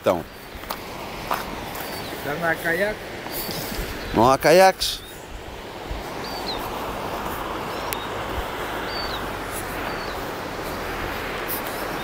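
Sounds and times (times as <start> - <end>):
bird chirping: 0.0 - 0.7, 1.4 - 11.0
river rushing over rapids: 0.0 - 12.0.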